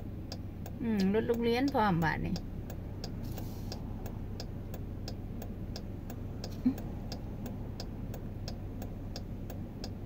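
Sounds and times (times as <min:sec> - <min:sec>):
idling car hum: 0:00.0 - 0:10.0
turn signal clicking: 0:00.0 - 0:10.0.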